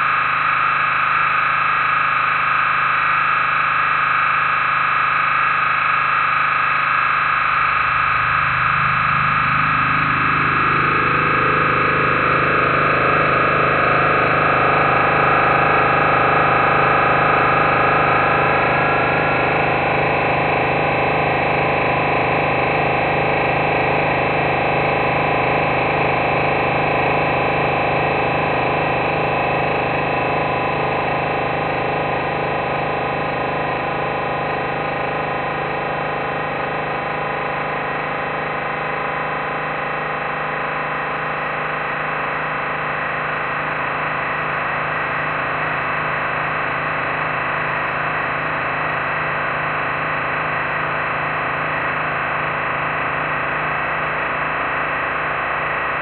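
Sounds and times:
dense electronic drone: 0.0 - 56.0.

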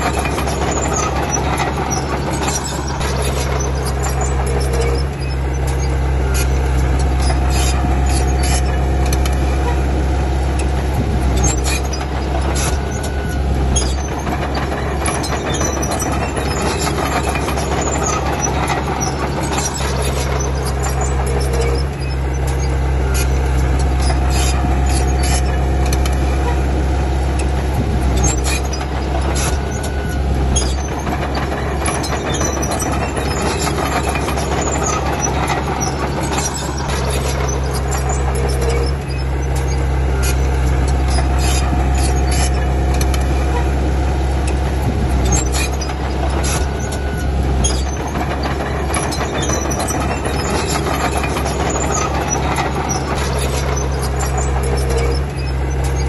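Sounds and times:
bulldozer diesel engine running: 0.0 - 56.0
metallic clanks and knocks: 27.4 - 56.0.

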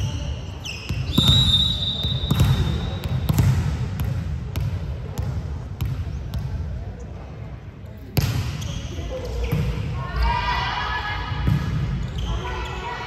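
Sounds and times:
sneakers squeaking: 0.0 - 6.5, 8.2 - 9.8, 11.5 - 13.0
referee's whistle: 0.1 - 3.0.

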